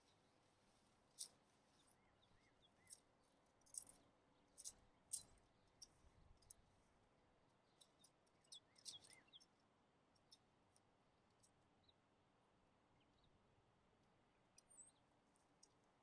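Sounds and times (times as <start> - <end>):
tent pole sections clicking: 2.9 - 6.6.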